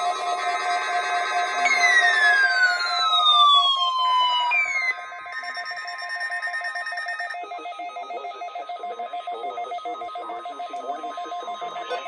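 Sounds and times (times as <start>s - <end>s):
rapid electronic beeping: 1.3s - 12.0s
faint broadcast voice: 7.3s - 12.0s.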